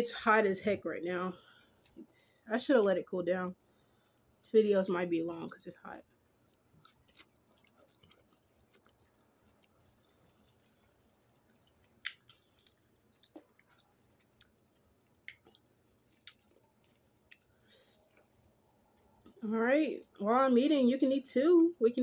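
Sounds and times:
wet clicks of eating noodles: 6.4 - 19.4.

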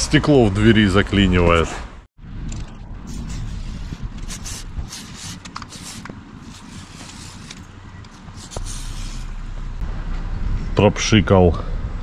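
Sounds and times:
aerosol can spraying: 3.1 - 7.6, 8.4 - 9.3.

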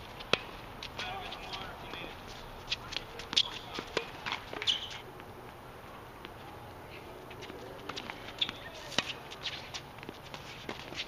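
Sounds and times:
shoes scuffing on court: 0.0 - 11.0
tennis ball bouncing: 0.1 - 5.3, 7.3 - 11.0.

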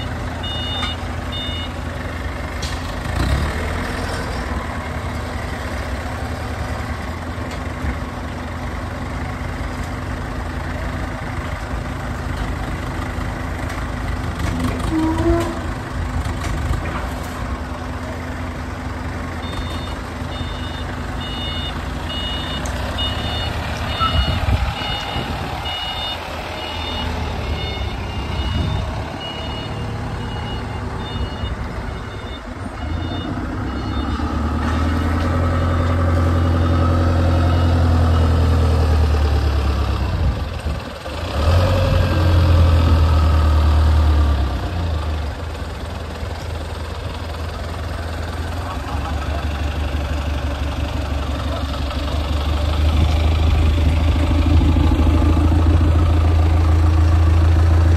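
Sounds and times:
vehicle reversing alarm beeping: 0.0 - 2.0, 19.4 - 38.7
heavy engine revving: 2.2 - 7.0, 14.0 - 46.0, 47.4 - 57.9.

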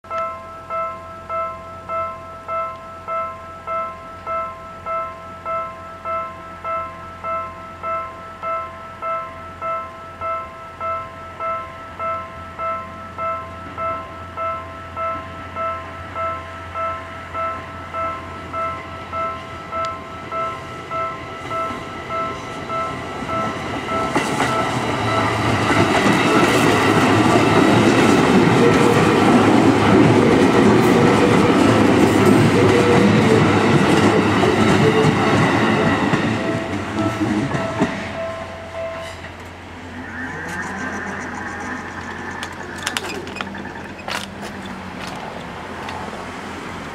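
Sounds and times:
level-crossing bell ringing: 0.1 - 39.1
train wheels clattering over rails: 21.4 - 38.2, 42.4 - 46.2.

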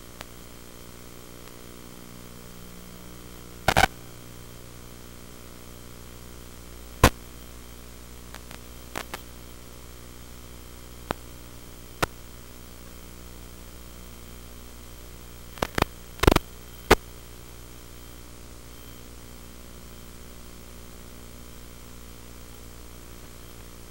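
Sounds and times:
electrical hum and static: 0.0 - 23.9
sharp pops: 3.7 - 4.0, 15.6 - 17.0.

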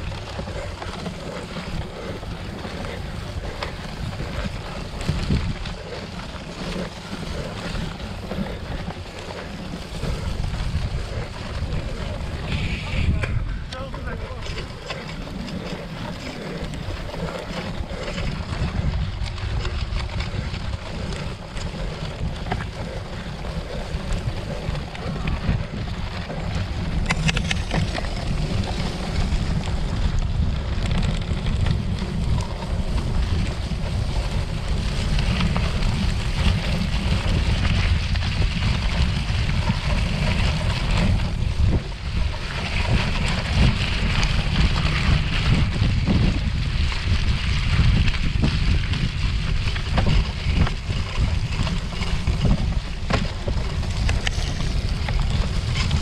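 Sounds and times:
wind buffeting microphone: 0.0 - 56.0
bike knocks and rattles: 26.9 - 56.0.

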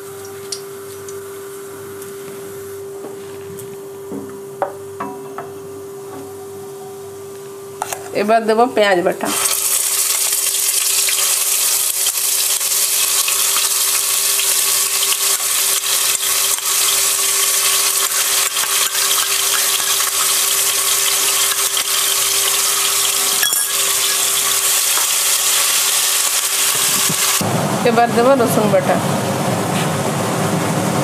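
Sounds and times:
paste sizzling in hot oil: 9.3 - 27.4.

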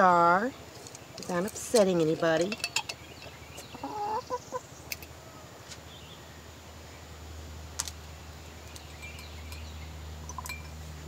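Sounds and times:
glass jar and syringe clinks: 2.4 - 3.3, 8.7 - 10.8
hen murmuring: 3.7 - 4.7.

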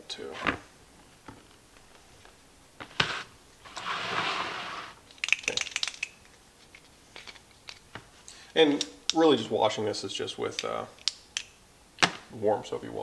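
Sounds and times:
sharp plastic clicks: 5.1 - 6.2.

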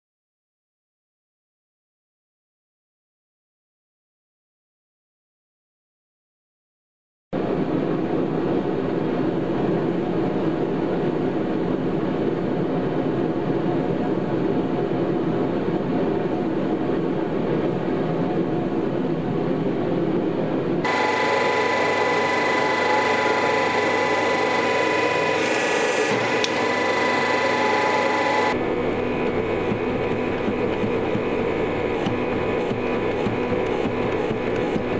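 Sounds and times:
steady whine: 7.4 - 34.9
forge burner rushing: 20.8 - 34.9.

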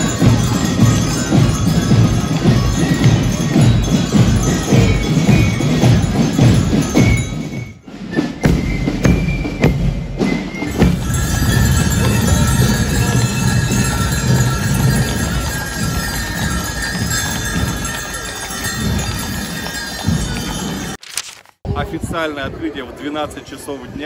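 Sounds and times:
music with bells and percussion: 0.0 - 21.0
street parade din: 0.0 - 24.0
horse hooves clip-clopping: 10.6 - 21.0.

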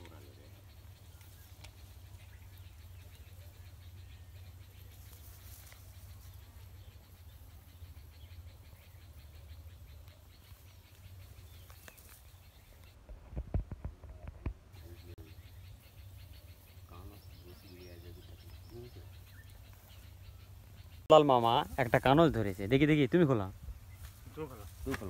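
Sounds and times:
small ticks: 1.0 - 2.0, 5.0 - 6.5, 9.4 - 14.6.

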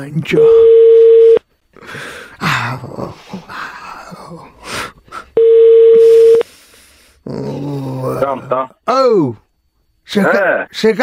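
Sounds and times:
telephone ringback tone: 0.4 - 1.4, 5.4 - 6.4
man grunting and groaning: 2.2 - 5.3, 7.2 - 8.5.

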